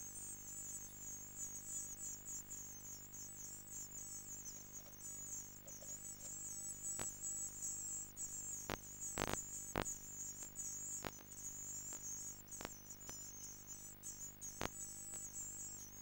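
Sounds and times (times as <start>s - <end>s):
nestlings begging: 0.6s - 16.0s
sharp clicks: 8.7s - 11.2s.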